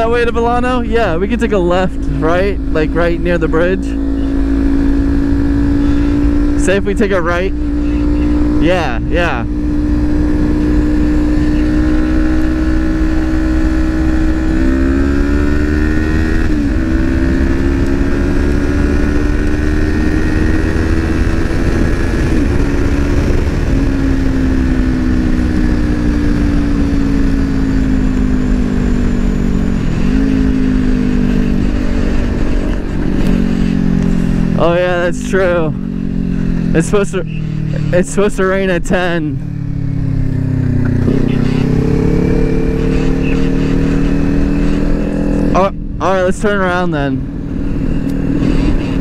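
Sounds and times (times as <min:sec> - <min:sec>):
motorcycle engine running: 0:00.0 - 0:49.0
wind rumble on microphone: 0:07.6 - 0:34.6.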